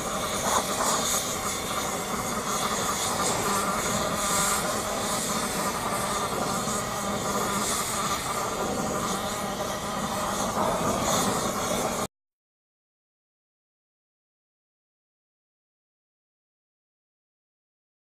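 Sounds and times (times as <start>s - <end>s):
gas torch flame hissing: 0.0s - 12.1s.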